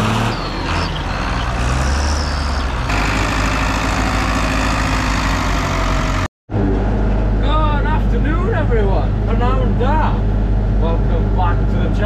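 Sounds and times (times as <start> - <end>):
tractor diesel engine running hard: 0.0 - 8.0.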